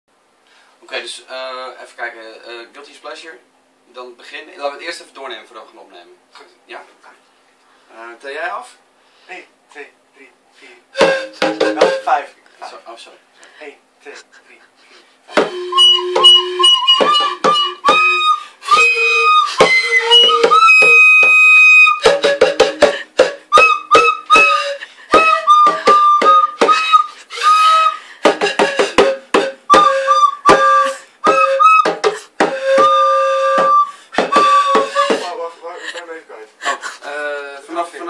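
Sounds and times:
pan flute: 10.9 - 12.2, 15.3 - 35.6
djembe hand taps: 11.0 - 12.0, 22.0 - 24.6, 28.2 - 29.9, 31.3 - 35.3.

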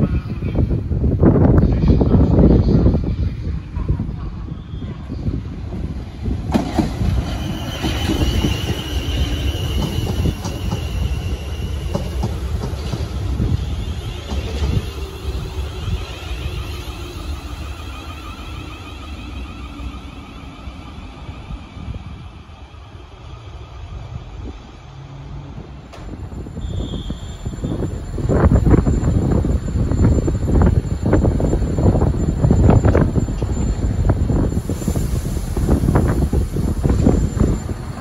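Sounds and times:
train rumbling past: 0.0 - 38.0
high steady squeal: 6.9 - 24.5, 26.0 - 38.0.

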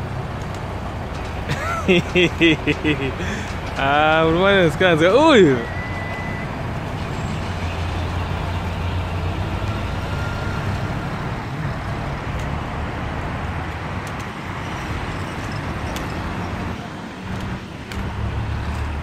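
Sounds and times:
truck engine running: 0.0 - 13.8
traffic noise: 0.0 - 19.0.

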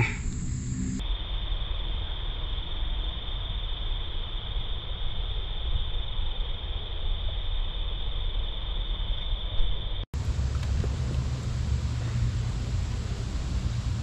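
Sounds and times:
high-pitched buzzing tone: 0.0 - 1.0
wind rumble on microphone: 9.7 - 14.0.

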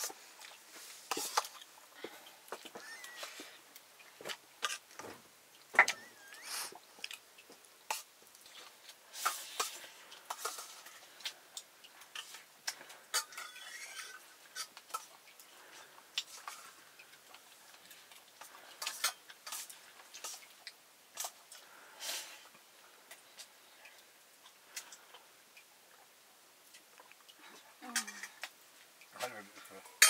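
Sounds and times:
stirring scrapes in a pot: 0.0 - 2.1, 7.9 - 11.4, 12.0 - 22.5
utensils and dishes clinking: 13.1 - 15.1.

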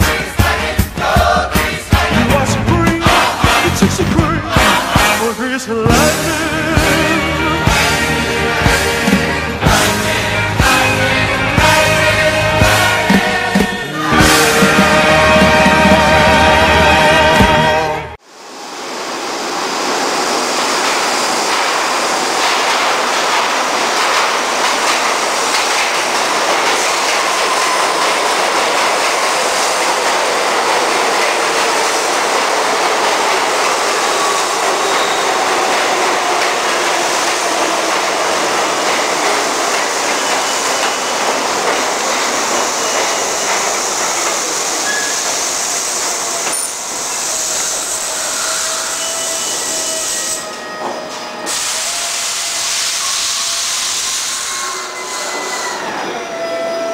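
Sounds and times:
subway train rumbling on rails: 0.0 - 56.9
faint wheel squeals: 44.8 - 45.3.

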